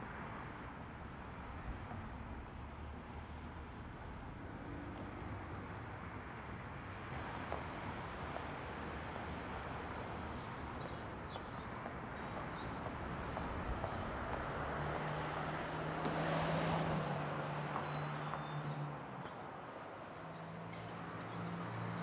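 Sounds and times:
passing vehicles rushing: 7.1 - 22.0.

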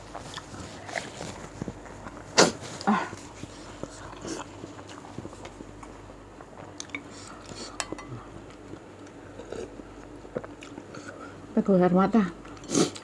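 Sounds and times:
chewing with mouth clicks: 0.1 - 2.2, 3.6 - 11.3.

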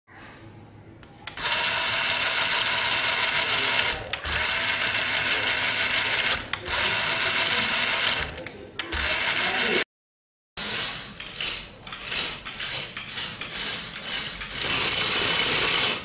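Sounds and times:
small gear motors running: 1.3 - 9.8.

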